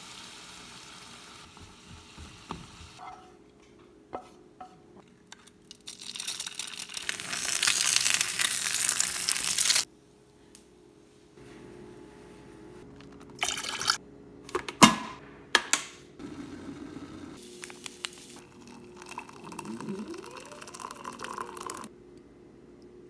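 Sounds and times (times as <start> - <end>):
hot water pouring into mug: 13.4 - 14.0, 17.6 - 21.9.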